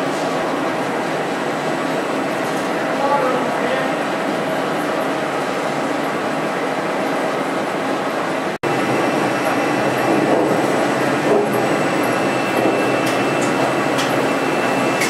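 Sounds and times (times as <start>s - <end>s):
machine running: 0.0s - 15.0s
high-pitched whine: 8.7s - 15.0s.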